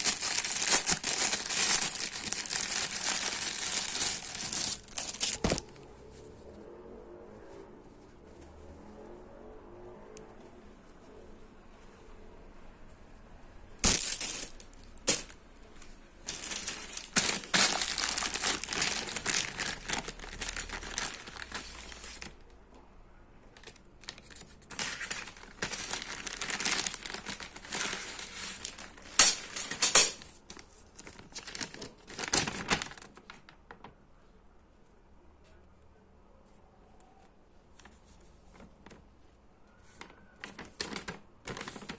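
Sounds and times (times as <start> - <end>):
plastic packaging crinkling: 0.0 - 5.8, 13.8 - 15.4, 16.2 - 22.4, 23.6 - 33.6, 40.0 - 41.9.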